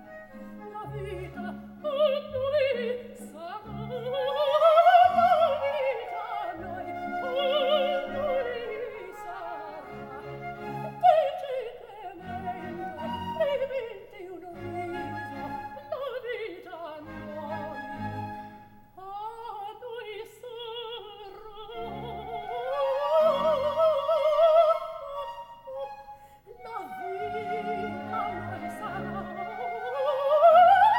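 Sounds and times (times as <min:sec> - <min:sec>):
orchestral accompaniment: 0:00.0 - 0:11.1, 0:17.0 - 0:18.8
soprano singing opera: 0:00.0 - 0:30.9.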